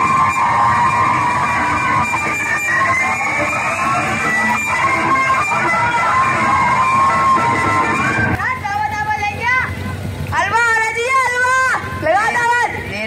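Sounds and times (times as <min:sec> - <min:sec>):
wandering melody music: 0:00.0 - 0:08.4.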